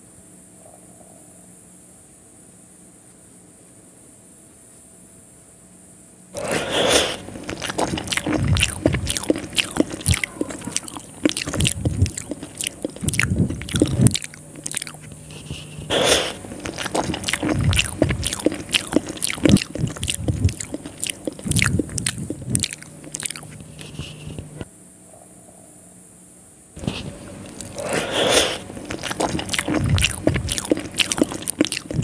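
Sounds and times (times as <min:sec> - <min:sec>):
lip smacks and mouth clicks: 0:06.4 - 0:24.7, 0:26.8 - 0:32.0
slurping noodles: 0:06.4 - 0:24.7, 0:26.8 - 0:32.0
wet chewing: 0:06.4 - 0:24.7, 0:26.8 - 0:32.0.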